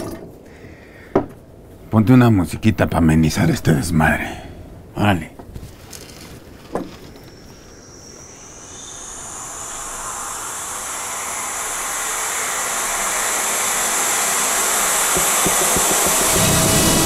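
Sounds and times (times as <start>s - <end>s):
hissing noise drone: 6.0s - 17.0s.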